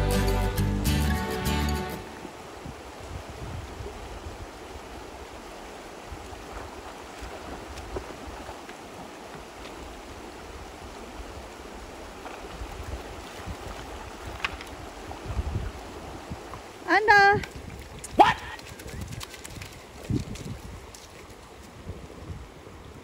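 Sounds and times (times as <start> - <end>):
river water rushing over rapids: 0.0 - 18.7
wind buffeting microphone: 2.5 - 8.6, 10.0 - 23.0
dog splashing in water: 17.5 - 20.6.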